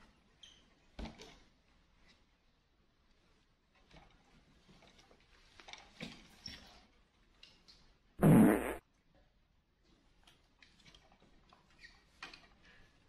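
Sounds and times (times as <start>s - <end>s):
loud fart: 8.2s - 8.8s.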